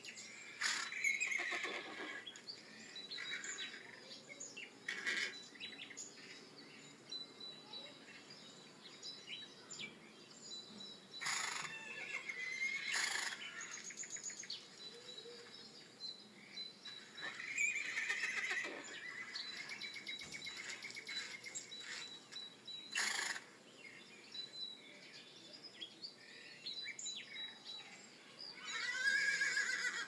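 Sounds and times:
small bird chirps: 0:00.0 - 0:29.9
horses whinnying: 0:00.6 - 0:02.3, 0:11.2 - 0:13.8, 0:17.2 - 0:19.8, 0:23.0 - 0:23.4, 0:28.6 - 0:30.0.

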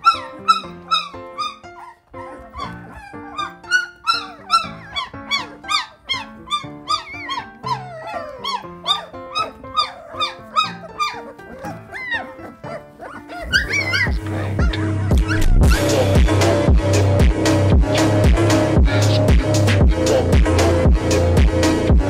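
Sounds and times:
puppies whining and crying: 0:00.0 - 0:16.6
background music: 0:00.0 - 0:22.0.

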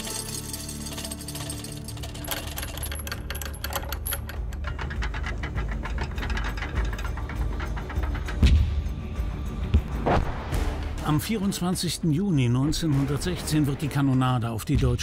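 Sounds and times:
mechanical rattling and clicking: 0:00.0 - 0:09.7.

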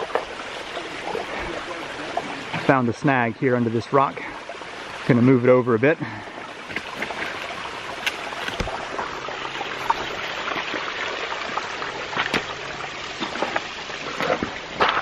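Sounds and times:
creek running over rocks: 0:00.0 - 0:15.0.

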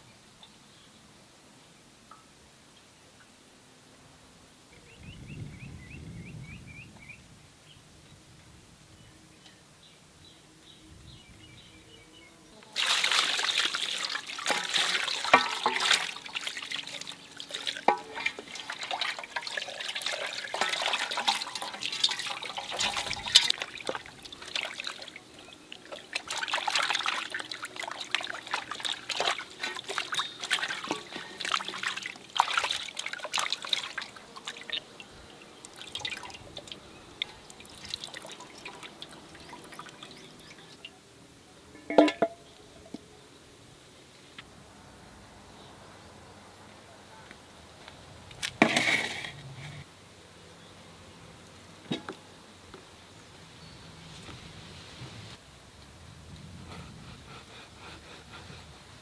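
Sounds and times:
water trickling and splashing: 0:12.8 - 0:41.0.

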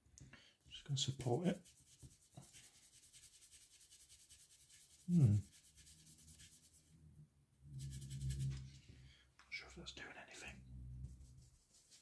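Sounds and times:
brush scratching plastic: 0:01.0 - 0:06.9, 0:07.7 - 0:08.8, 0:11.1 - 0:12.0.

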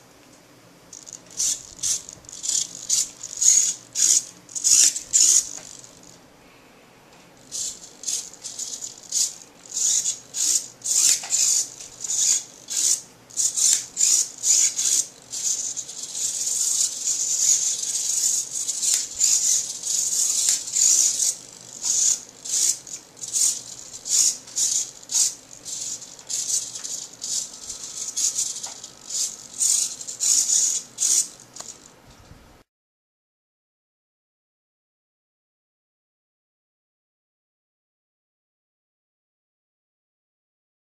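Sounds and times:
servos whirring: 0:00.9 - 0:06.2, 0:07.4 - 0:31.9.

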